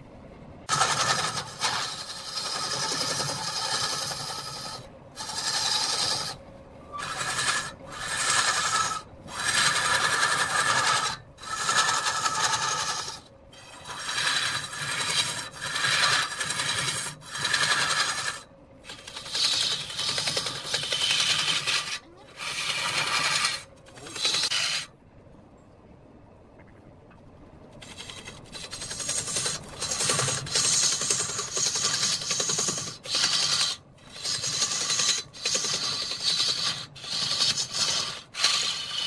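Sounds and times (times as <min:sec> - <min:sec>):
sandpaper rasping on spinning wood: 0:00.7 - 0:24.9, 0:27.8 - 0:39.0
lathe humming: 0:07.0 - 0:24.9, 0:27.8 - 0:39.0.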